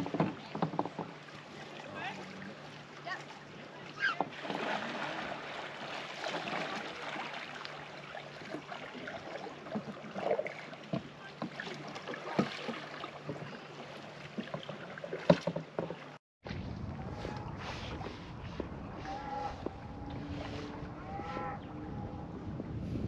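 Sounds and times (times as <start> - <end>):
paddle knocks: 0.0 - 2.1, 8.4 - 16.6
rippling water: 0.0 - 22.3.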